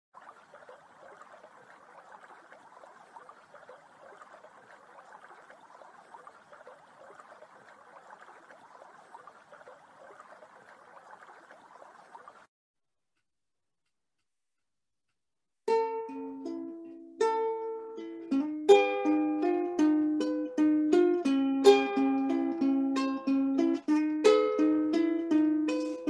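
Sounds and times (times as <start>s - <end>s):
stream babbling over stones: 0.2s - 12.5s.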